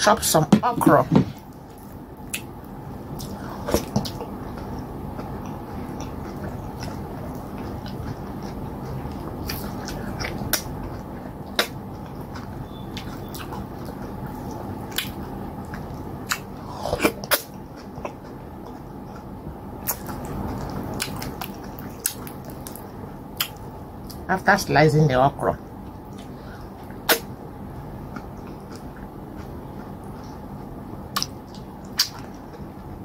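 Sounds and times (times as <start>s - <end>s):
low background hum: 0.0s - 33.0s
wet squishing of food: 1.4s - 24.2s
mouth clicks and chewing smacks: 3.1s - 24.2s, 28.1s - 32.9s.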